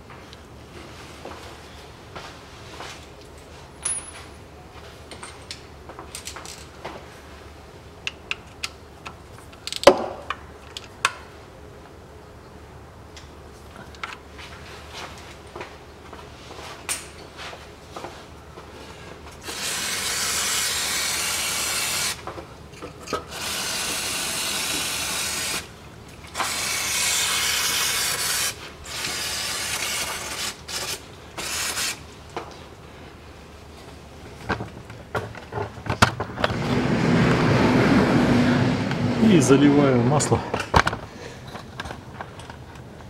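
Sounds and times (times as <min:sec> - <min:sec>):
aerosol spray can hissing: 0:19.4 - 0:22.2, 0:23.4 - 0:25.7, 0:26.4 - 0:32.0.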